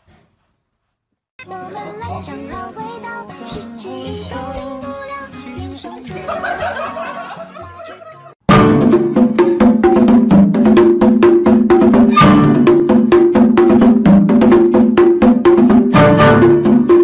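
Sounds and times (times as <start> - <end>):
music with fast percussive beat: 5.4 - 17.0.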